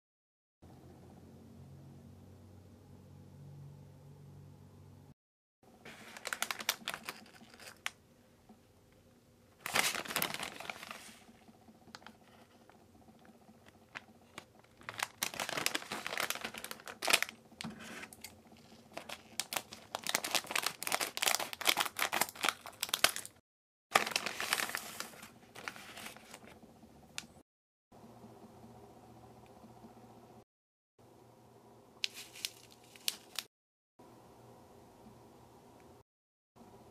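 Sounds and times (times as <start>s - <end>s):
plastic wrapper crinkling and tearing: 5.9s - 8.0s, 9.6s - 12.6s, 13.2s - 26.5s, 32.0s - 33.5s.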